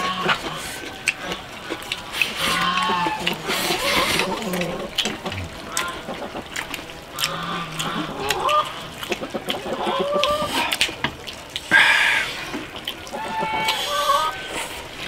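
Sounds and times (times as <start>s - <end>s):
chickens clucking: 0.0s - 15.0s
chopsticks clicking against bowls: 0.3s - 11.8s.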